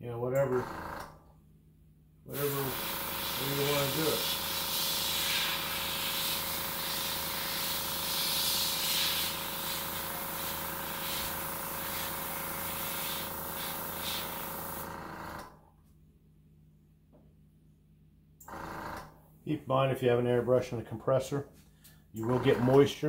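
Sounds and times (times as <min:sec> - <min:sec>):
airbrush spraying hiss: 0:02.3 - 0:14.8
air compressor hum: 0:02.3 - 0:15.6, 0:18.4 - 0:19.4, 0:21.5 - 0:23.0.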